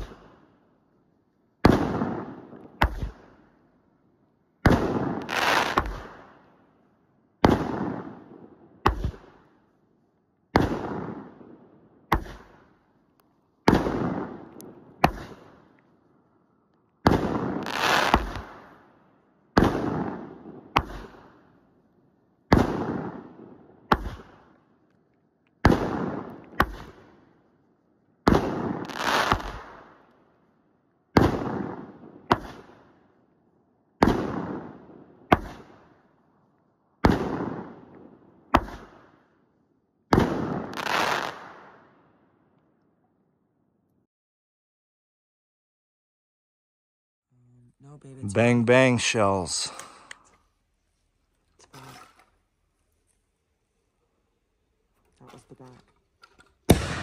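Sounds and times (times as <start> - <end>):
fireworks bangs crackling: 4.7 - 6.2, 17.1 - 18.7, 28.3 - 29.7, 40.2 - 41.7, 55.1 - 57.0.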